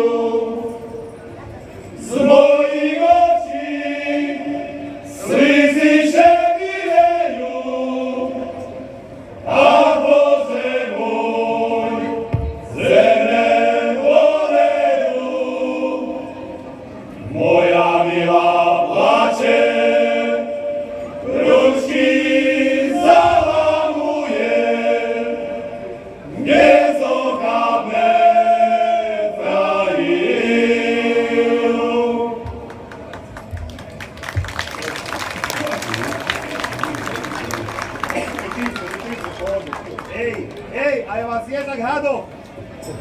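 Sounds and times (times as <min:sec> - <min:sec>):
folk ensemble singing: 0:00.0 - 0:01.2, 0:01.9 - 0:32.9.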